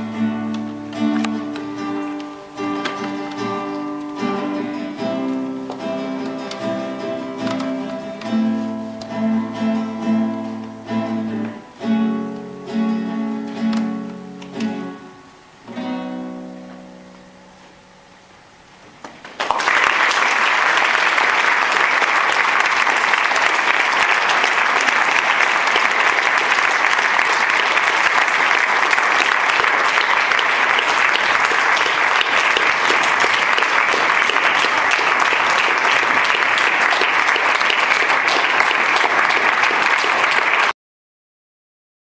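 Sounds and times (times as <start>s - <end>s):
audience clapping: 0.0s - 9.2s, 19.1s - 40.8s.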